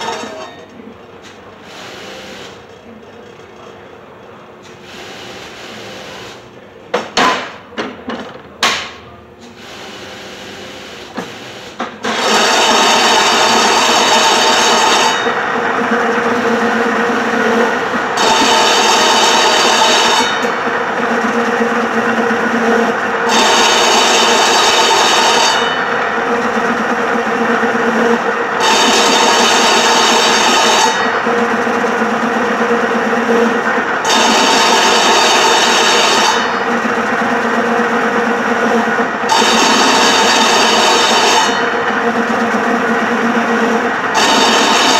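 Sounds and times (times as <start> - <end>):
cutting machine humming: 12.0 - 44.9
high-pitched cutting whine: 12.0 - 44.9.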